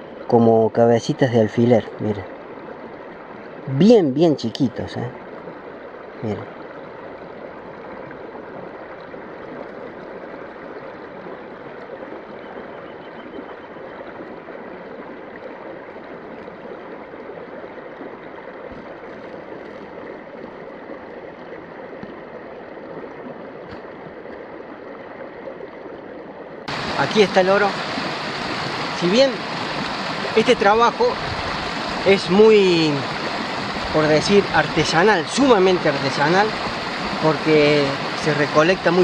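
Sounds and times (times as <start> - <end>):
river rushing over rocks: 26.7 - 39.0.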